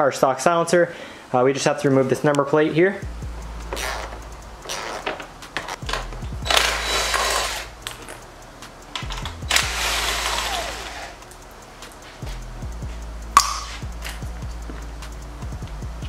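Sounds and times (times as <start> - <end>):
ratchet wrench clicking: 3.2 - 15.8.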